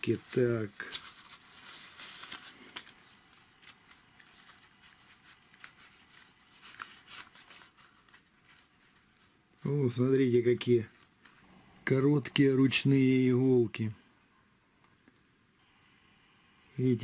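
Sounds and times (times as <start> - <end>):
paper rustling and crinkling: 0.0 - 9.8.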